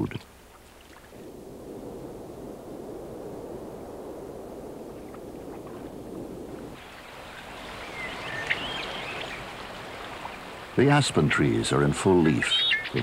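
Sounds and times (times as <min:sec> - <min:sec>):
muffled water noise: 0:00.0 - 0:13.0
water moving around beaver: 0:00.3 - 0:01.6, 0:04.9 - 0:11.4
faint bird chirps: 0:07.7 - 0:09.6, 0:12.3 - 0:13.0.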